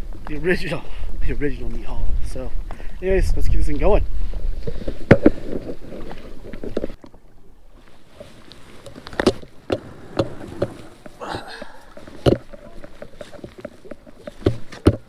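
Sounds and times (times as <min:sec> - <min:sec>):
footsteps on rock and sand: 0:07.7 - 0:15.0.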